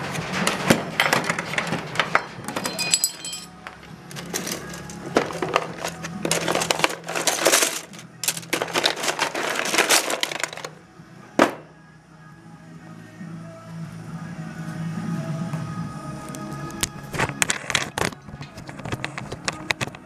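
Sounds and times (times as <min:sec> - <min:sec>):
memory modules rattling in plastic tub: 0:04.3 - 0:10.7.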